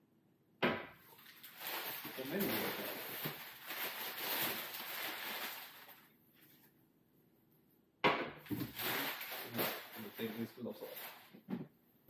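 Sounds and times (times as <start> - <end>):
packing paper rustling and crackling: 1.2 - 6.1, 8.5 - 11.4.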